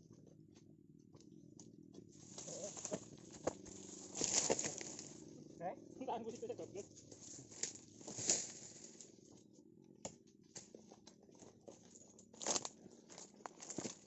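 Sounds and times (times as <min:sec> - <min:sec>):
footsteps crunching on dry leaves: 0:02.2 - 0:05.2, 0:07.0 - 0:09.1, 0:12.4 - 0:14.0.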